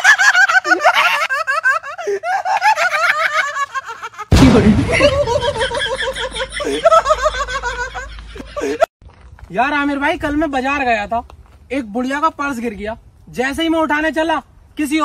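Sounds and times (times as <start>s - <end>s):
man laughing in high cackles: 0.0s - 8.9s.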